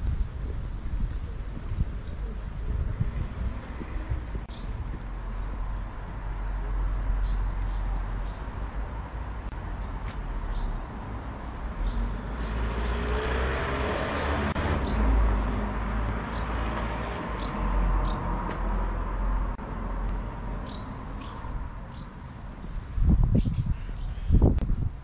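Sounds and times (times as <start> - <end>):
car passing: 11.0 - 22.0.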